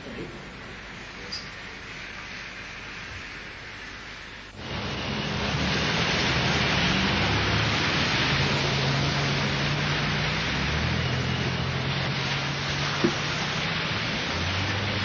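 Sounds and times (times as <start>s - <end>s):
low hum of car engines: 0.0s - 15.0s
rain hissing: 0.0s - 15.0s
tyres on wet street: 0.0s - 15.0s.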